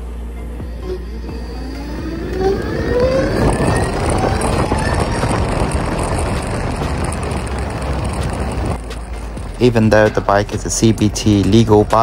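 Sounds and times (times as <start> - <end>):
electric motorcycle motor whining: 0.0 - 9.6
wind and road noise: 0.0 - 12.0.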